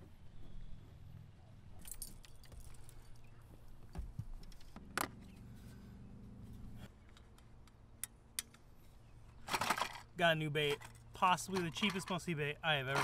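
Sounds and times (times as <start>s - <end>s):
fishing gear clinking and rattling: 1.8s - 3.3s, 9.4s - 13.0s.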